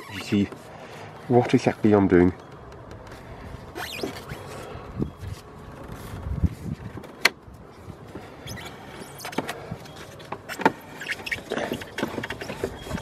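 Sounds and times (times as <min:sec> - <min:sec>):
sharp clicks and knocks: 0:02.4 - 0:03.2.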